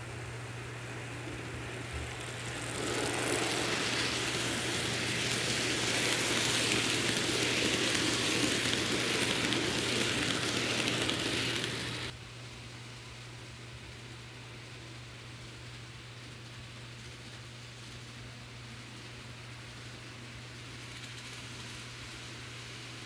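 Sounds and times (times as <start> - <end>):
model train wheels rattling: 0.5 - 12.1.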